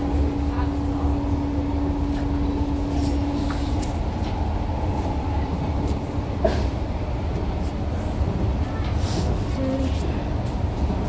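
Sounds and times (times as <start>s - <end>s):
constant train tone: 0.0s - 11.0s
train wheels rumbling on track: 0.0s - 11.0s.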